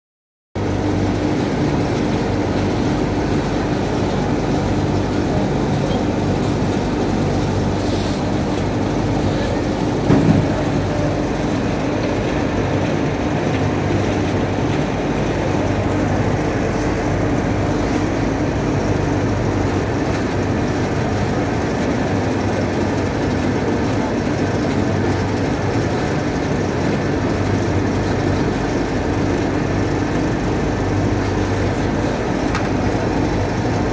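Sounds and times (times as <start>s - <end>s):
garment-pressing machinery hum: 0.6s - 33.9s
brief knock: 10.1s - 10.6s.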